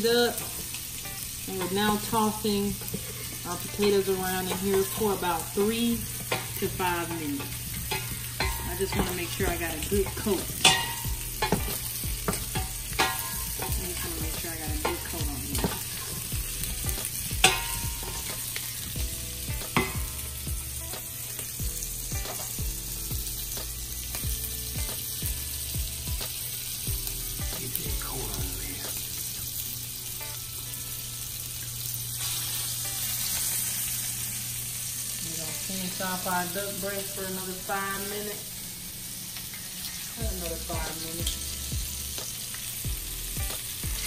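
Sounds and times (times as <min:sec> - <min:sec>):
potatoes sizzling in hot fat: 0:00.0 - 0:44.0
spoon and potatoes knocking on pot: 0:06.1 - 0:18.4, 0:19.6 - 0:20.2.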